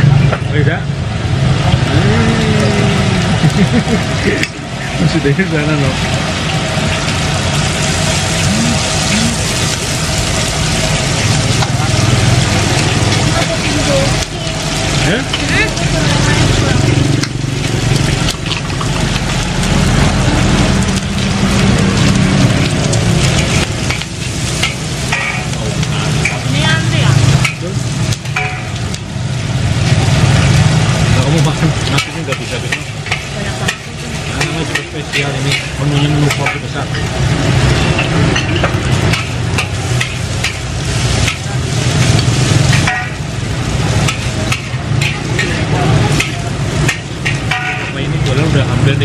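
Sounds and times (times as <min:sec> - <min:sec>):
food sizzling in wok: 0:00.0 - 0:49.0
metal spatula scraping and clinking: 0:23.4 - 0:25.6, 0:44.0 - 0:48.0.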